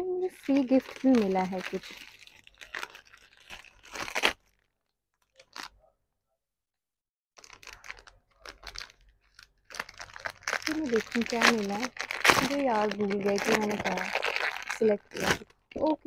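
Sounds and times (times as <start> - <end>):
packaging being torn and rustled: 0.4 - 4.7, 7.4 - 15.6.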